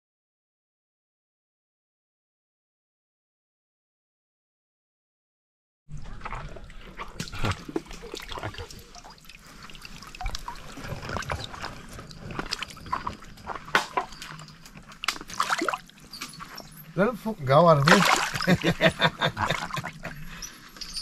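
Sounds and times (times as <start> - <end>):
water sloshing and splashing: 5.9 - 21.0
water trickling and dripping: 5.9 - 21.0.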